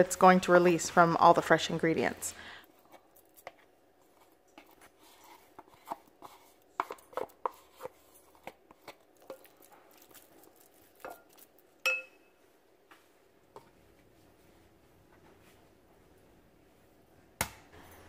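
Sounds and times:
spoon scraping a tub: 0:02.8 - 0:09.6.

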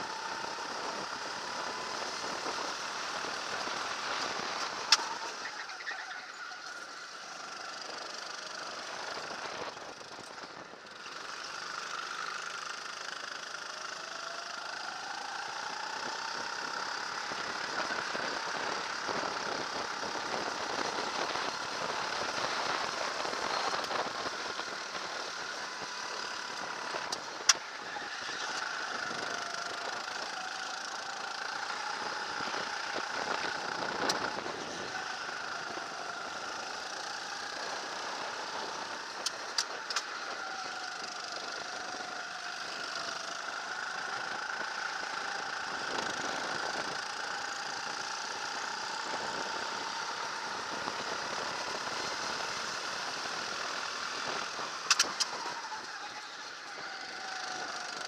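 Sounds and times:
kart engine revving: 0:00.0 - 0:58.0
wind and road noise: 0:00.0 - 0:58.0
sharp click: 0:54.9 - 0:55.3.

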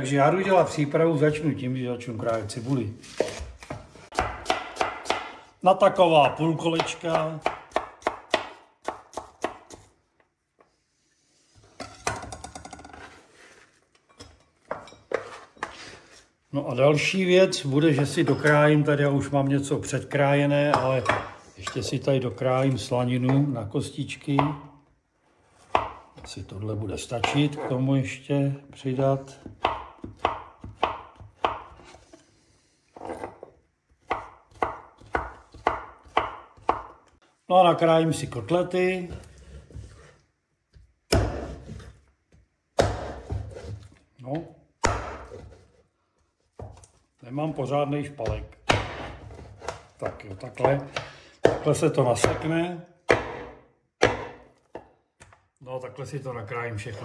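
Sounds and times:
knife slicing on wooden board: 0:03.0 - 0:03.8, 0:39.1 - 0:40.2
knife chopping on wooden board: 0:03.0 - 0:05.5, 0:06.7 - 0:10.0, 0:25.6 - 0:26.3, 0:29.4 - 0:32.0, 0:33.0 - 0:37.2, 0:39.1 - 0:42.0, 0:42.8 - 0:43.9, 0:44.8 - 0:45.8, 0:48.2 - 0:52.5, 0:53.1 - 0:55.4
onion rubbing and rustling: 0:13.0 - 0:13.9.

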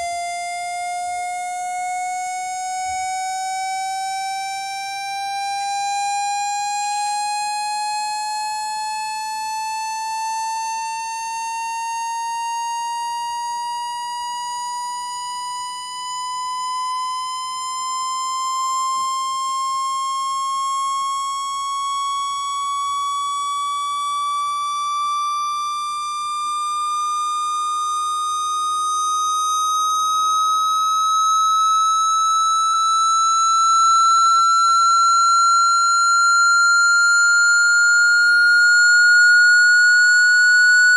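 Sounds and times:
electronic tone rising in pitch: 0:28.0 - 0:40.9.

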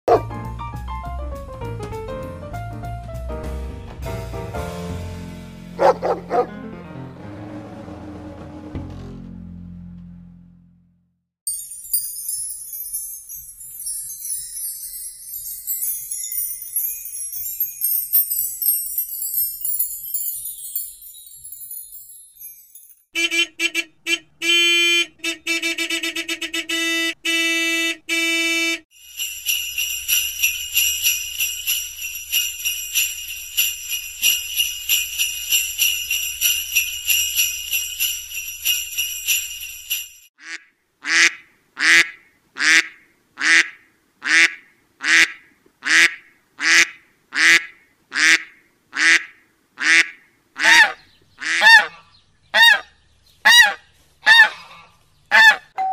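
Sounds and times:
wind chimes tinkling: 0:11.5 - 0:23.1, 0:28.9 - 0:40.3
sleigh bells jingling: 0:11.5 - 0:23.2, 0:28.9 - 0:40.3
ducks quacking: 0:40.4 - 0:52.9, 0:53.5 - 0:55.6.

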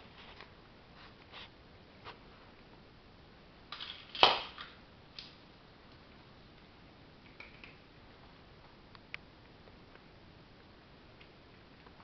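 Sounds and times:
plastic toy clattering on tiled floor: 0:03.7 - 0:04.8, 0:07.2 - 0:07.8.

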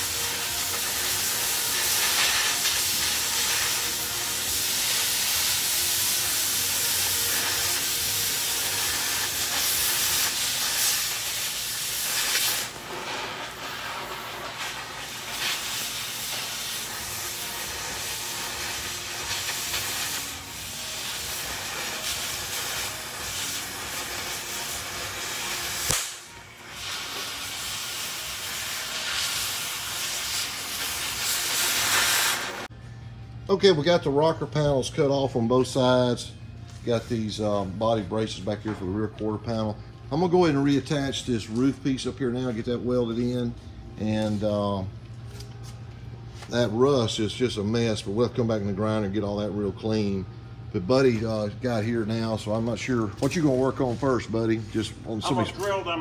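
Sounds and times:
cutting torch hissing: 0:00.0 - 0:32.7.

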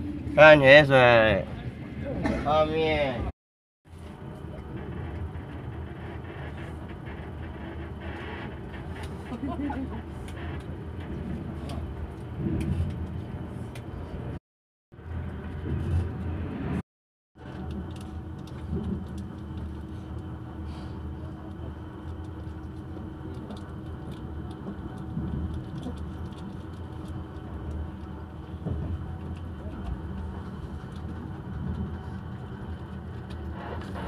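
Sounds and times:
train wheels rumbling on track: 0:03.9 - 0:14.4, 0:17.4 - 0:34.0.

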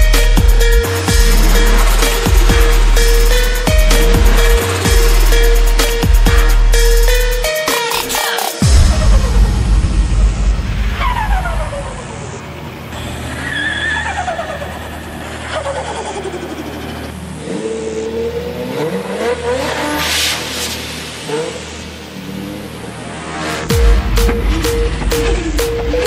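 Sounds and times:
electronic music track: 0:00.0 - 0:17.2, 0:20.1 - 0:26.0
car engine revving: 0:00.0 - 0:26.0
tyre screech: 0:13.0 - 0:17.8.

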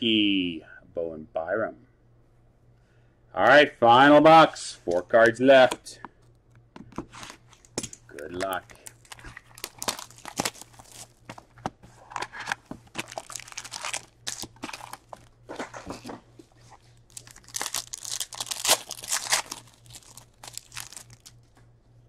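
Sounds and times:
foil wrapper crinkling and tearing: 0:08.2 - 0:11.5, 0:12.4 - 0:15.3, 0:17.0 - 0:21.4.

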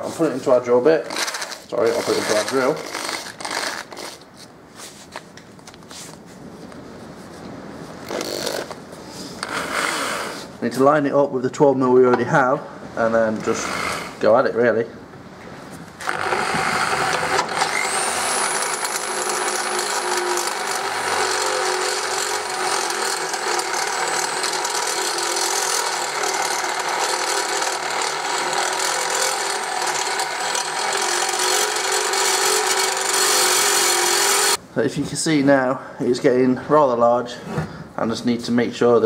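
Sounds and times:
electric drill cutting metal: 0:16.0 - 0:34.6
high drill whine: 0:16.0 - 0:34.6.

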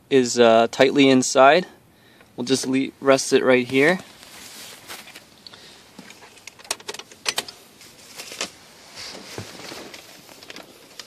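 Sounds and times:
faint rustling: 0:03.4 - 0:06.6, 0:07.6 - 0:11.0.

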